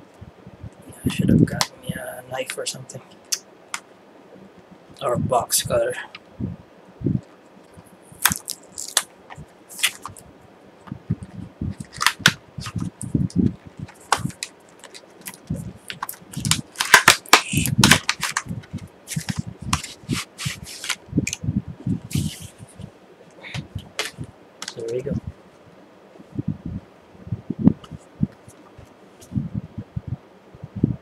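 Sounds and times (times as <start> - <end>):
plastic packaging crackling: 8.2 - 10.2, 11.8 - 13.1, 13.8 - 21.0.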